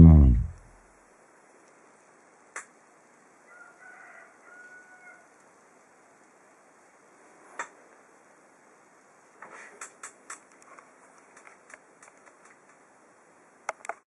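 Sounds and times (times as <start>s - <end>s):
distant rooster crowing: 3.4s - 5.4s.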